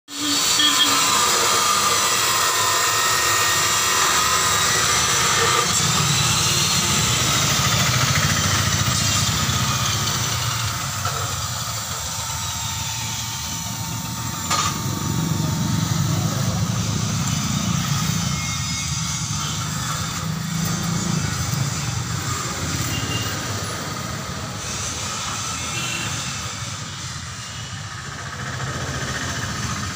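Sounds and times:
mechanical running noise: 0.2s - 29.9s.

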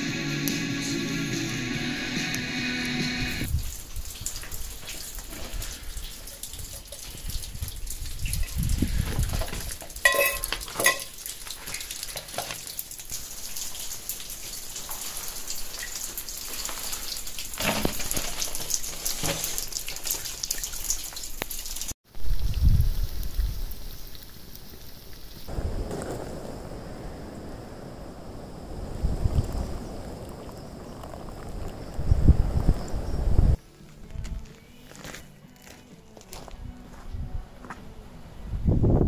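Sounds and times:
rain on rocks and gravel: 3.4s - 33.1s
metal mug clinking on stones: 10.0s - 11.2s.

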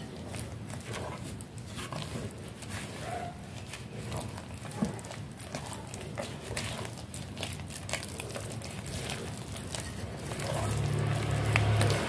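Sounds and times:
spatula scraping dough in bowl: 0.0s - 12.0s.

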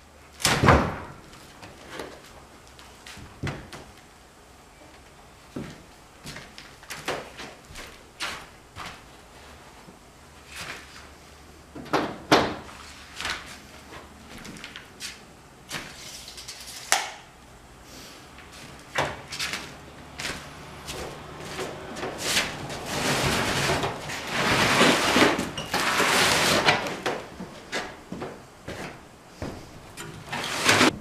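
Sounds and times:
knocks and clicks of handling furniture: 11.7s - 12.7s
scraping rustle: 18.0s - 31.0s
footsteps on plastic sheet: 18.4s - 25.3s.

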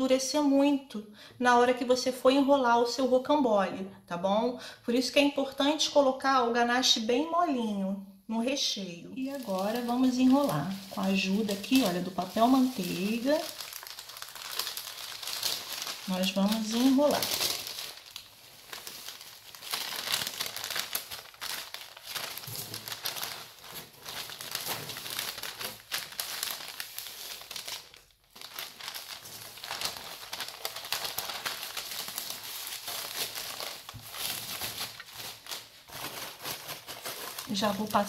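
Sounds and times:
parchment paper crinkling: 9.2s - 38.0s.

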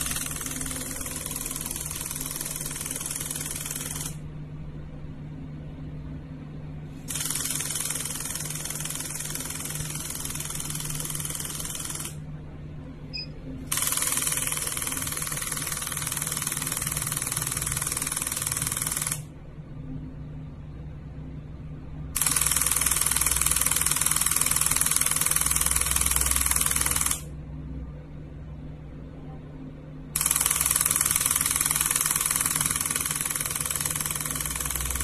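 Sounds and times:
rapid buzzing pulses: 0.0s - 4.2s, 7.1s - 12.2s
machine low hum: 0.0s - 35.0s.

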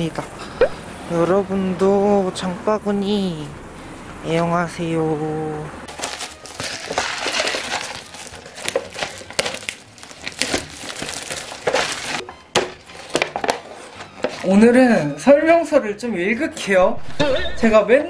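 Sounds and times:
plastic film crinkling: 5.9s - 14.6s.

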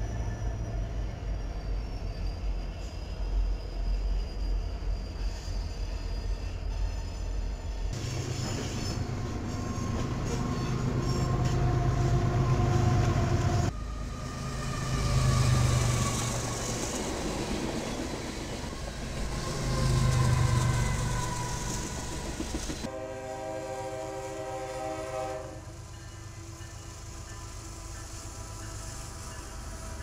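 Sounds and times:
high-pitched train tones: 0.0s - 30.0s
rail cars on the track: 0.0s - 30.0s
diesel locomotive rumble: 8.0s - 30.0s.

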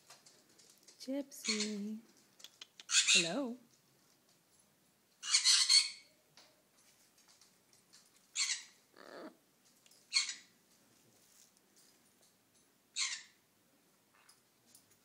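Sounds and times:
macaw squawking: 5.2s - 6.1s.

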